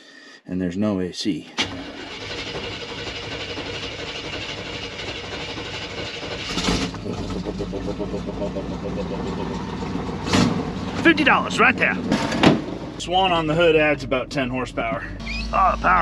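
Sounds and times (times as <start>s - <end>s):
engine cranking on starter: 1.6s - 12.8s
truck engine idling: 1.7s - 16.0s.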